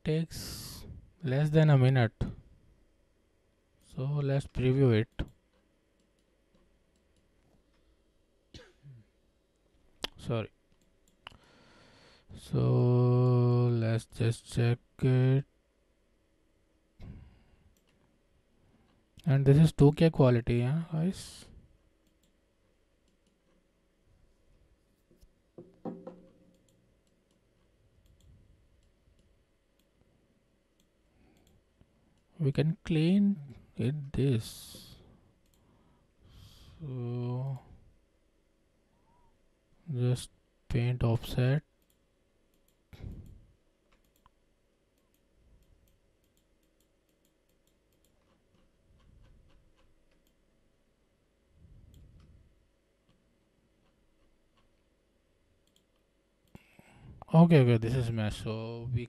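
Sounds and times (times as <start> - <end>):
computer mouse clicks: 5.1 - 7.8, 17.7 - 18.1, 22.0 - 22.4, 26.5 - 30.0, 30.8 - 32.3, 35.4 - 35.7, 41.8 - 50.4, 55.6 - 56.7
soft low sounds: 20.5 - 59.0
faint computer mouse clicks: 30.8 - 32.3, 35.4 - 35.7, 41.8 - 44.4, 55.6 - 56.7.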